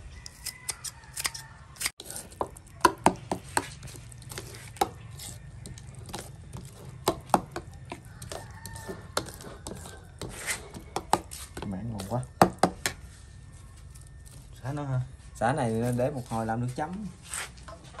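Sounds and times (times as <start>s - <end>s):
scissor snips: 0.2s - 2.1s
spoon scraping a bowl: 0.2s - 14.6s.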